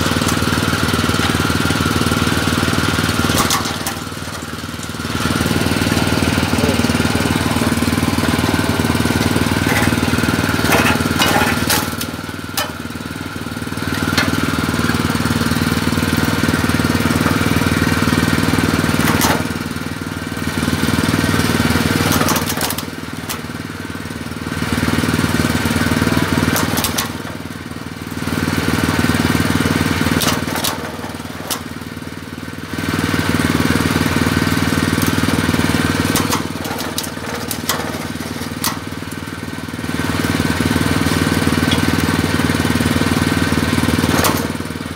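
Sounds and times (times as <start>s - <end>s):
cutter drum grinding coconut: 0.0s - 32.0s, 33.0s - 44.9s
machine motor hum: 0.0s - 32.1s, 33.2s - 44.9s.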